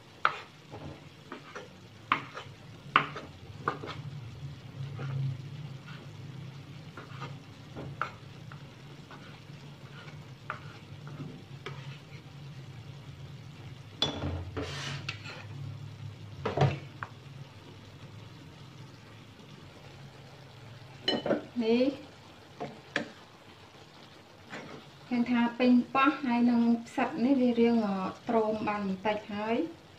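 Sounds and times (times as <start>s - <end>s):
clattering and scraping in china bowl: 9.1s - 12.2s.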